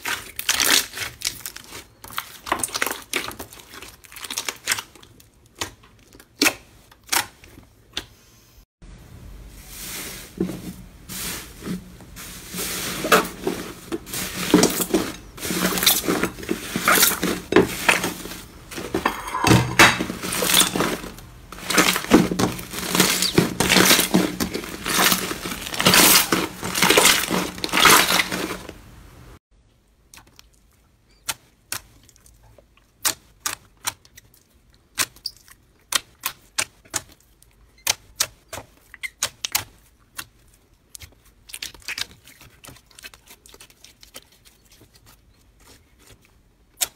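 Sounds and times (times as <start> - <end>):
slime crackling and popping: 0.0 - 7.4, 20.4 - 28.8.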